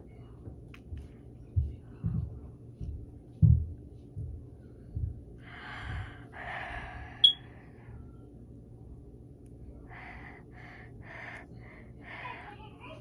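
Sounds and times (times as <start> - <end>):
person breathing out heavily: 5.4 - 7.8, 9.9 - 12.4.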